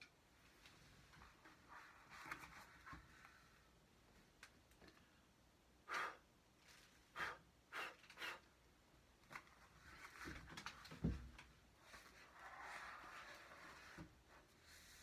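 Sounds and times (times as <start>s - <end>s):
book rustling: 1.2s - 3.4s
short puffs of breath: 5.8s - 6.3s, 7.1s - 8.5s.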